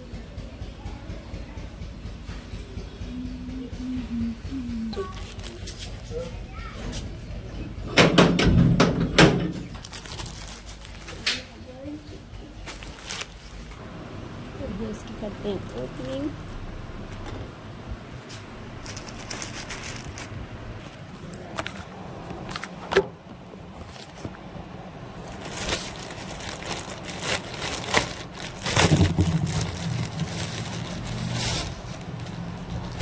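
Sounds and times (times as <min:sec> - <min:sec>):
steady low hum: 0:00.0 - 0:07.9, 0:11.6 - 0:33.0
plastic mailer crinkling and tearing: 0:05.1 - 0:05.9, 0:09.7 - 0:11.5, 0:12.7 - 0:13.7, 0:18.8 - 0:21.8, 0:25.2 - 0:33.0.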